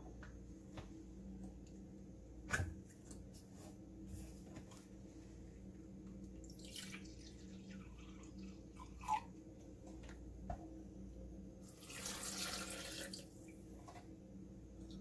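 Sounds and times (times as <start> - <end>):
liquid pouring into cup: 6.4 - 9.3, 11.7 - 13.3
liquid pouring into blender jar: 11.8 - 13.2.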